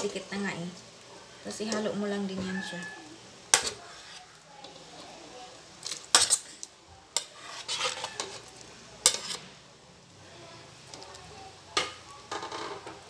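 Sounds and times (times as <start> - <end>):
spoon scraping pot: 3.5 - 4.4, 7.2 - 9.5.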